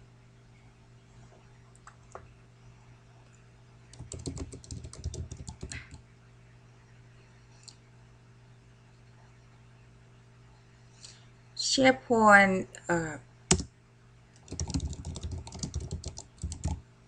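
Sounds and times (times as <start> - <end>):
low steady hum: 0.0 - 17.0
keyboard typing: 3.9 - 6.0, 14.4 - 16.8.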